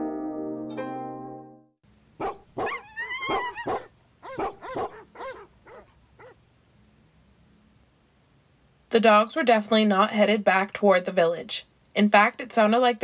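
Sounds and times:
dogs barking and baying: 2.2 - 6.4.

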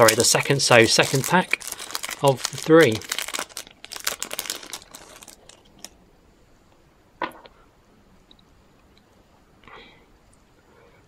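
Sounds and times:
foil wrapper crinkling and tearing: 0.0 - 6.0.

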